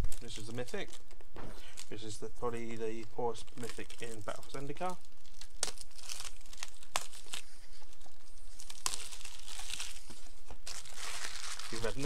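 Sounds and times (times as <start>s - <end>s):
paper and cardboard rustling: 7.0s - 12.0s.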